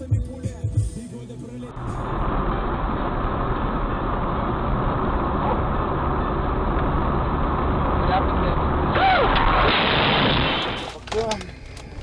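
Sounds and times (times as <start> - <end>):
car engine and road noise: 1.0 - 12.0
low hum: 1.7 - 10.9.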